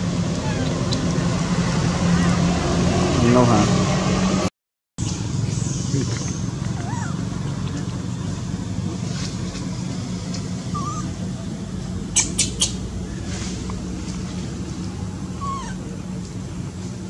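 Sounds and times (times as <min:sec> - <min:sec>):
steady low hum: 0:00.0 - 0:17.0
baby monkey squeaking: 0:00.4 - 0:01.0, 0:05.6 - 0:07.2, 0:10.7 - 0:11.1, 0:12.2 - 0:12.8, 0:15.4 - 0:15.8.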